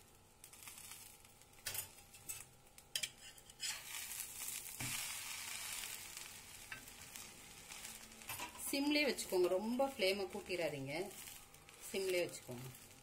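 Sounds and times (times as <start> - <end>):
sandwiches sizzling on griddle: 0.0 - 13.0
metal utensil scraping griddle: 1.6 - 8.8.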